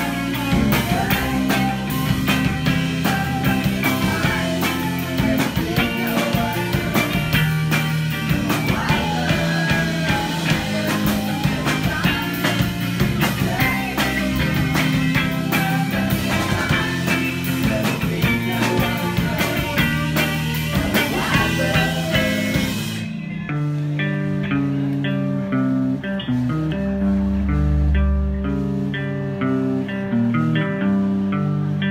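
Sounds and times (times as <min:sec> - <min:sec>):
drums and cymbals: 0:00.0 - 0:23.9
bass guitar: 0:00.0 - 0:31.9
electric guitar: 0:00.0 - 0:31.9
woman singing into a microphone: 0:08.6 - 0:12.7.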